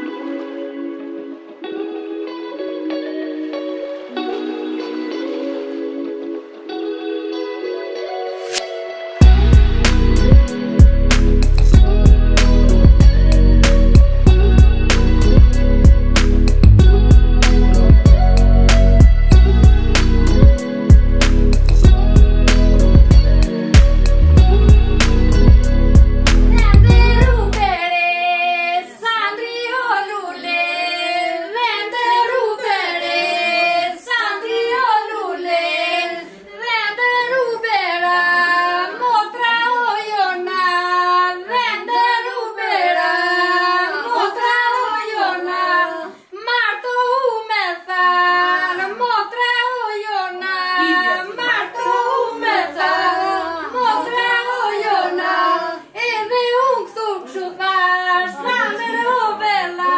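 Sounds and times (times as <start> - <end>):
women singing together: 26.5 - 59.9.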